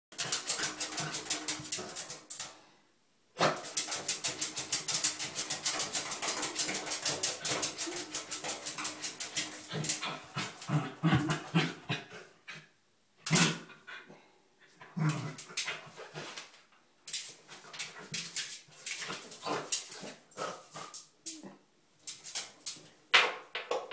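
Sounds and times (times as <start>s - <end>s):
dog claws scraping bathtub: 3.4s - 10.6s.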